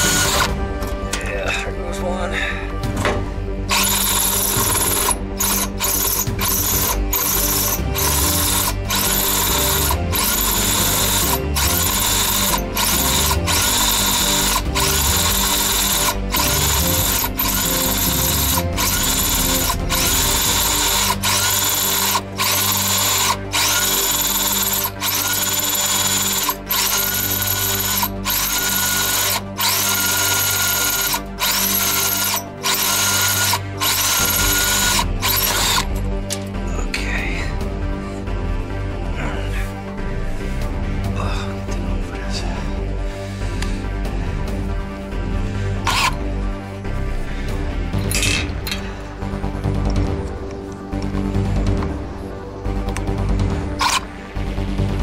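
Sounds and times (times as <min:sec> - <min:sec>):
cordless drill whining: 0:00.0 - 0:00.6, 0:03.7 - 0:35.9, 0:45.9 - 0:46.2, 0:53.8 - 0:54.0.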